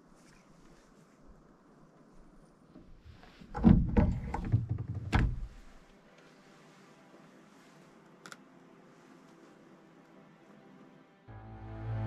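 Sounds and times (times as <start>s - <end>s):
knocks and thumps: 3.5s - 5.6s.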